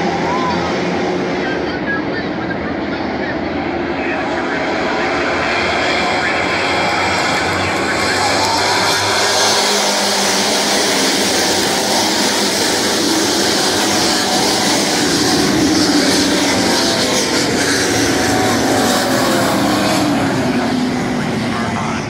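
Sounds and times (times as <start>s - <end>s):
race car engines din: 0.0s - 22.0s
single engine rising and falling: 6.0s - 21.7s.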